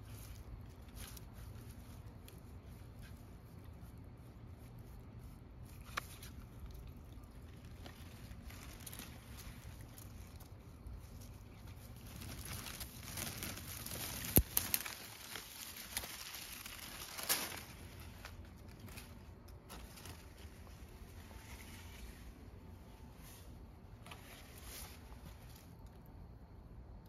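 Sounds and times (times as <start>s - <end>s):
rustling of dry leaves and grass: 0.0s - 26.4s.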